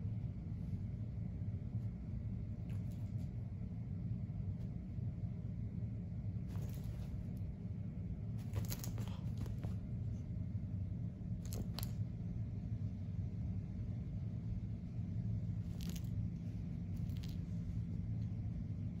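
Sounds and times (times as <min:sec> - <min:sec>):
soft rustling clicks: 0:08.4 - 0:10.0.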